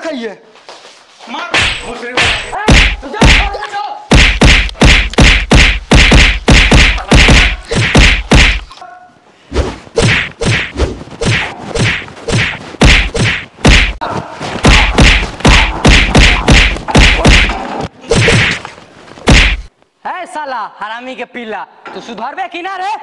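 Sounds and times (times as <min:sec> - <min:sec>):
punch and slap impacts: 0:01.6 - 0:08.7, 0:10.0 - 0:14.0, 0:14.6 - 0:18.6, 0:19.3 - 0:19.7.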